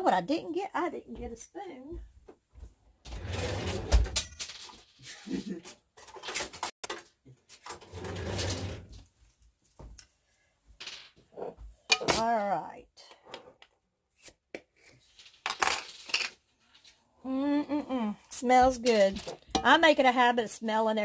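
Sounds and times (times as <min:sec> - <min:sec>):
cutlery clattering in drawer: 0:03.1 - 0:07.0, 0:07.6 - 0:08.9, 0:11.9 - 0:12.3.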